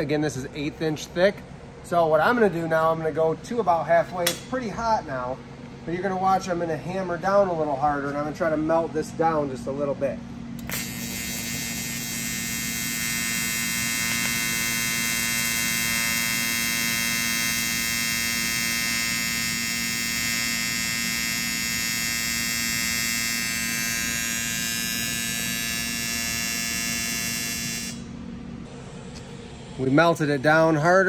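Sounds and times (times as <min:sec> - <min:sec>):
welding arc buzzing: 0:10.6 - 0:29.3.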